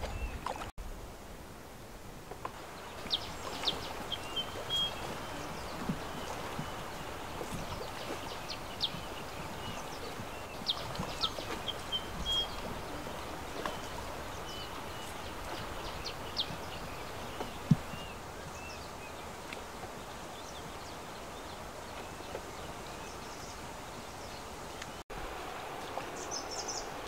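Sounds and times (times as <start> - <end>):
river noise: 0.0 - 27.0
bird chirps: 3.0 - 13.0.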